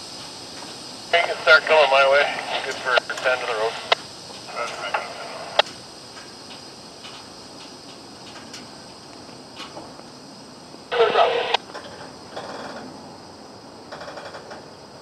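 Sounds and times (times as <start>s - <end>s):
radio hiss: 1.0s - 5.6s, 10.8s - 11.6s
scanner radio bursts: 1.1s - 5.6s, 10.9s - 11.6s.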